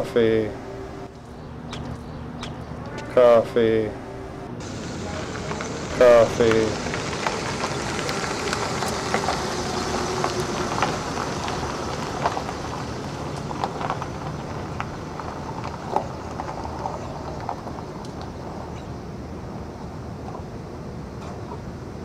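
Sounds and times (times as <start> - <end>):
tyres crunching stones: 4.6 - 18.6
car rolling on gravel: 4.6 - 20.5.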